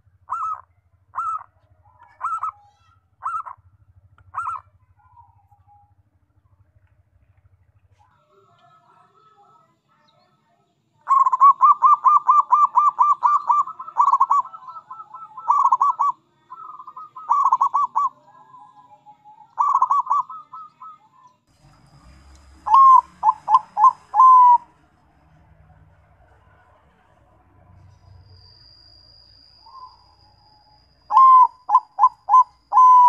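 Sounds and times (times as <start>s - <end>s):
doves cooing: 0.0s - 6.2s, 11.0s - 21.3s, 22.1s - 24.9s, 31.0s - 33.0s.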